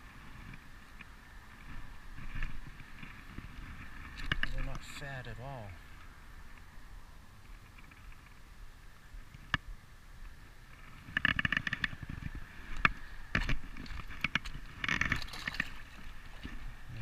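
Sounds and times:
fish splashing in water: 13.6s - 16.8s.

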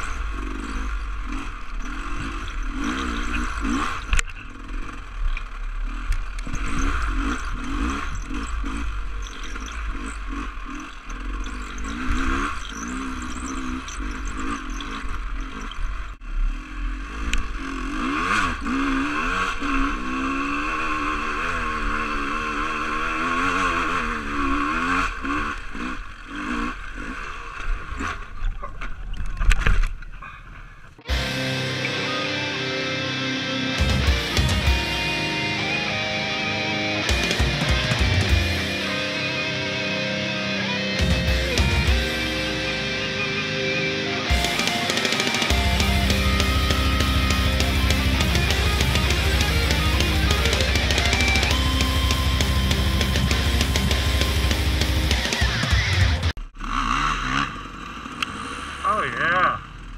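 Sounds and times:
dirt bike engine revving: 0.0s - 28.5s, 31.1s - 59.9s
chassis clattering over bumps: 44.3s - 56.4s.

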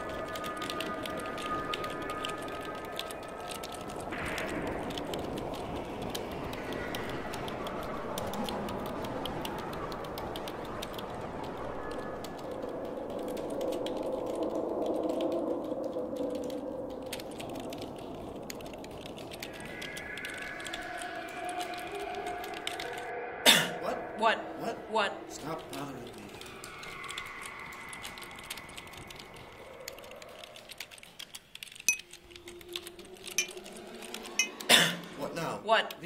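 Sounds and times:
fast typing on keyboards: 0.0s - 23.1s, 25.4s - 35.2s.

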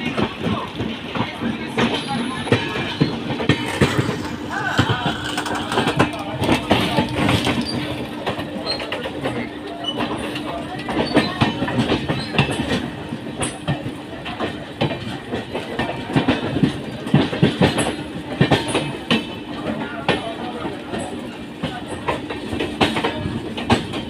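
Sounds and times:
continuous train rumble: 0.0s - 24.0s
train wheels clattering over rail joints: 0.0s - 24.0s.

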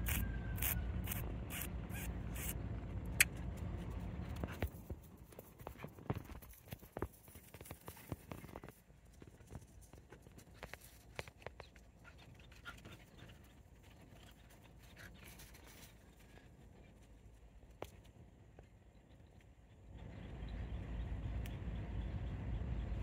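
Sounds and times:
dog paws scuffling on dry ground: 3.3s - 18.2s.

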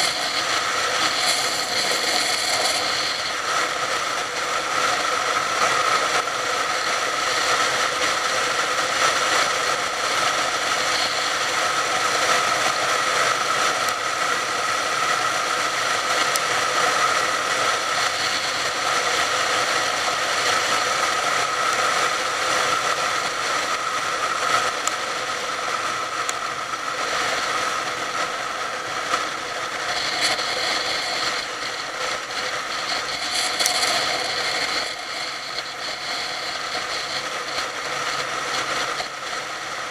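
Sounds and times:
motorcycle engine whine: 0.0s - 39.9s
wind and road noise: 0.0s - 39.9s.

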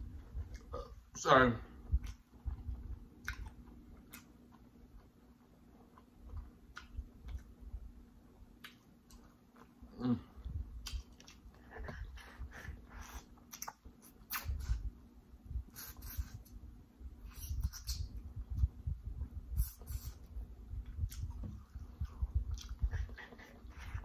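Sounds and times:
mouth clicks and lip smacks: 2.0s - 4.3s, 6.0s - 7.5s, 8.6s - 9.3s, 10.8s - 11.6s, 13.2s - 14.8s, 20.9s - 24.0s
wet chewing and sucking: 10.8s - 14.9s, 15.7s - 16.6s, 17.2s - 18.8s, 19.6s - 24.0s.

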